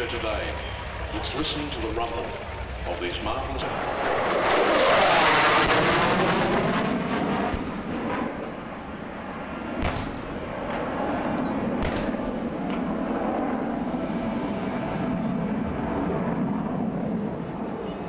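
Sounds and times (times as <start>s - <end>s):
propeller plane engines rumbling: 0.0s - 18.0s
sharp bangs: 9.8s - 10.9s, 11.8s - 12.8s.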